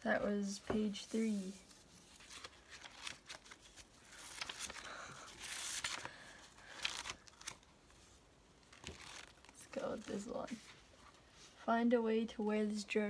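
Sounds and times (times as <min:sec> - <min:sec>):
paper rustling and crinkling: 0:00.2 - 0:11.6.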